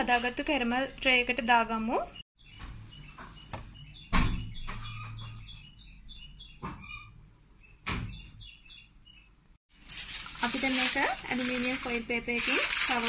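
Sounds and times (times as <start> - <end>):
small bird chirping: 1.8 - 9.4.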